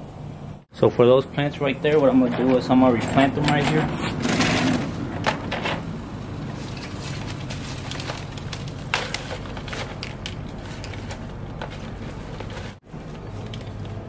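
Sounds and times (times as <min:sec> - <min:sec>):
plants rustling in plastic pot: 0:06.3 - 0:14.0.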